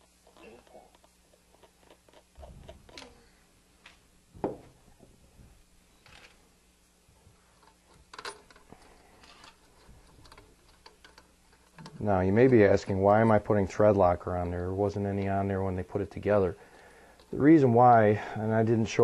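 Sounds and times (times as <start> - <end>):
metal engine parts clicking: 7.6 - 13.0.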